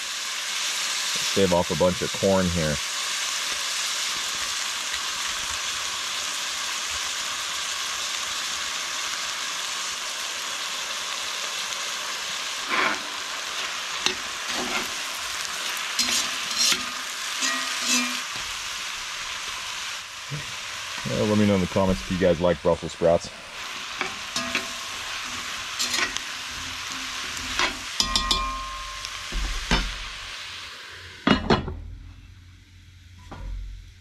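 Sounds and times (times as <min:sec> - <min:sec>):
meat sizzling in a pan: 0:00.0 - 0:31.3
knife scraping corn: 0:14.5 - 0:15.0, 0:16.0 - 0:18.3.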